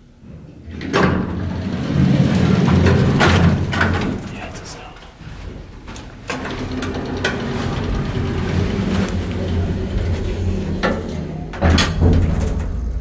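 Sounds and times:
elevator low hum: 0.0s - 13.0s
elevator thump: 0.7s - 4.5s, 6.2s - 13.0s
elevator door clicks: 6.2s - 13.0s.

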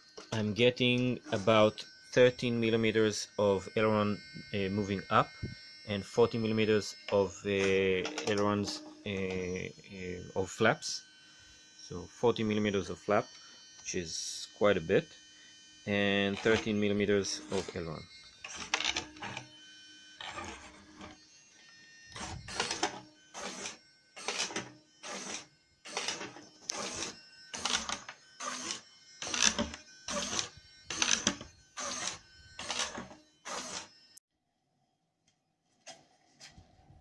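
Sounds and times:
servo motors whirring: 15.1s - 34.2s.

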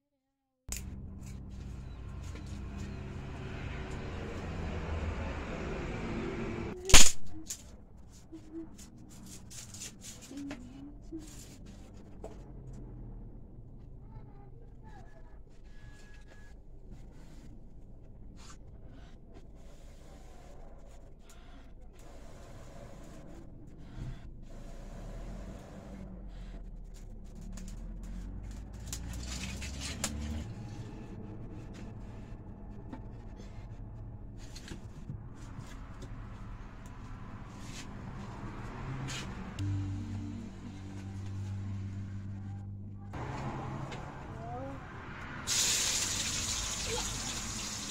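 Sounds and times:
sharp wood crack: 6.9s - 7.6s
firewood sticks rustling and scraping: 27.4s - 30.4s.

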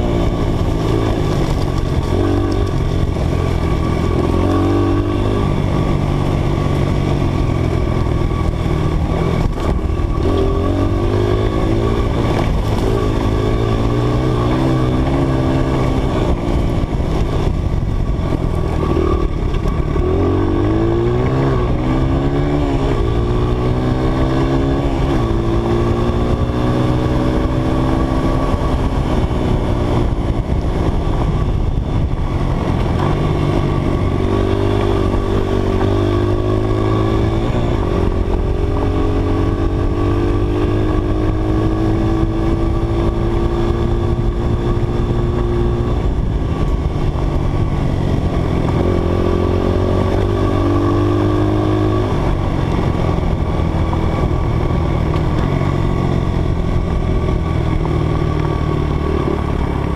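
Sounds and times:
dirt bike engine revving: 0.0s - 17.4s, 18.2s - 29.9s, 33.0s - 59.9s.

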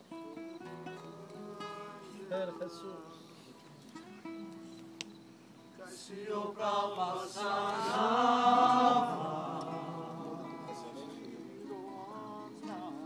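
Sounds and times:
group singing in worship: 5.8s - 13.0s.

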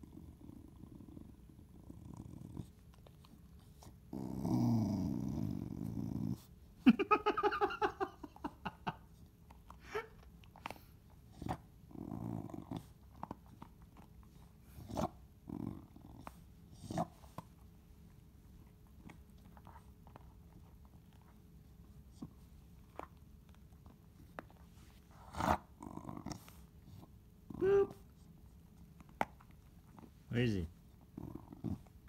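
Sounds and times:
dog growling: 0.0s - 6.5s, 11.2s - 13.6s, 14.6s - 17.4s, 25.1s - 28.1s, 31.0s - 32.0s.

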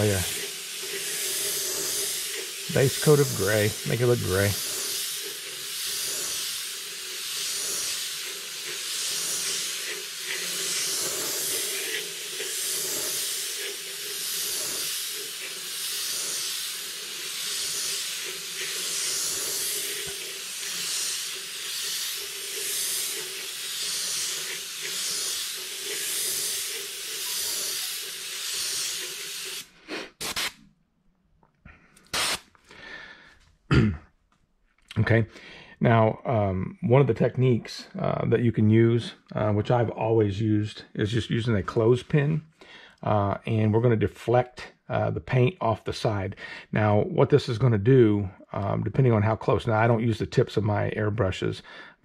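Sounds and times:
airbrush spraying paint: 0.0s - 30.6s, 32.1s - 32.5s.

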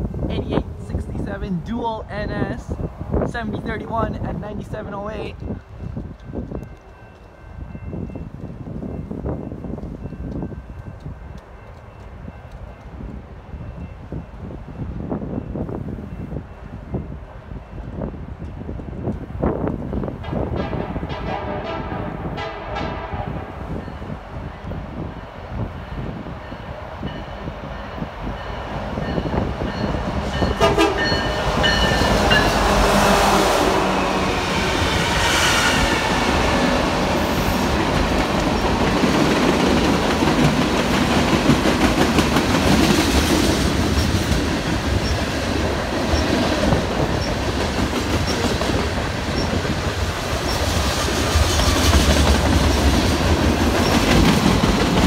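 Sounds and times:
train air horn: 21.2s - 23.6s, 30.6s - 31.2s, 32.2s - 36.2s
freight cars rumbling past: 28.0s - 45.0s
wheels clacking over rail joints: 36.0s - 55.0s.

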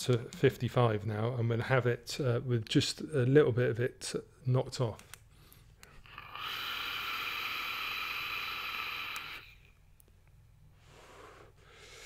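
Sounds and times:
air rushing through vape airflow: 6.2s - 9.6s.

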